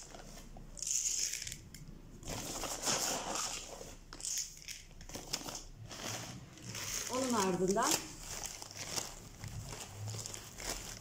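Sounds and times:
plastic bag crinkling: 5.1s - 11.0s.

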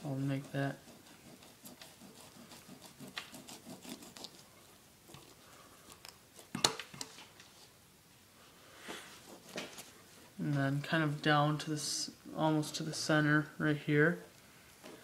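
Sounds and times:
knife scraping fish on cutting board: 0.4s - 4.4s.

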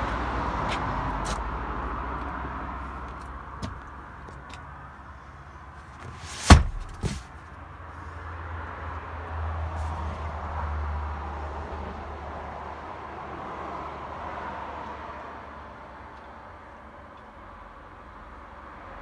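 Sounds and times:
armrest thudding: 6.0s - 7.3s.

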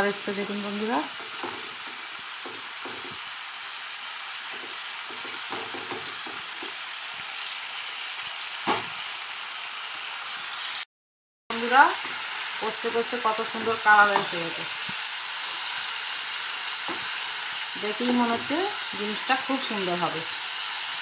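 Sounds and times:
chicken sizzling in pan: 0.0s - 10.9s, 11.6s - 21.0s
sharp knock: 8.7s - 8.9s.

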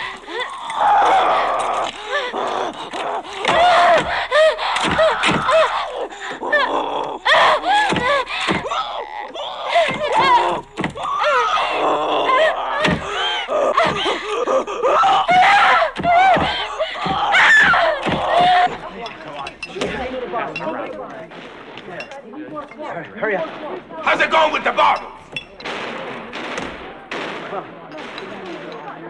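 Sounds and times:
woman crying and whimpering: 0.0s - 20.0s.

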